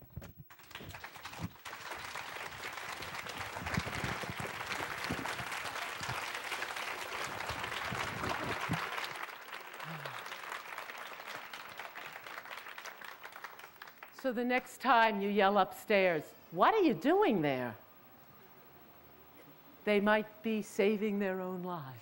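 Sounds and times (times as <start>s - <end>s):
audience applauding: 0.5s - 14.2s.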